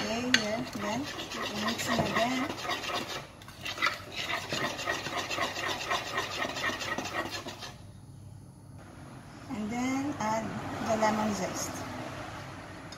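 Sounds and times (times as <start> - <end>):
fork beating batter in glass bowl: 0.0 - 7.8.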